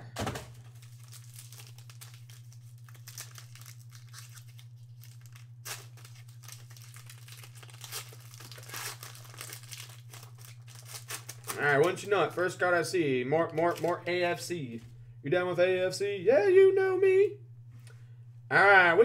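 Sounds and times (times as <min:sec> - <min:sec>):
low hum: 0:00.0 - 0:19.0
foil wrapper tearing and crinkling: 0:00.6 - 0:12.1, 0:13.5 - 0:14.1.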